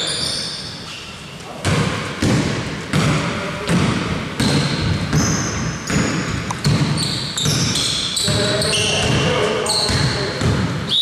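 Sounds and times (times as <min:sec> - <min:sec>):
shoes squeaking on floor: 0:00.0 - 0:01.8, 0:04.4 - 0:11.0
basketball dribbling on court: 0:01.6 - 0:10.8.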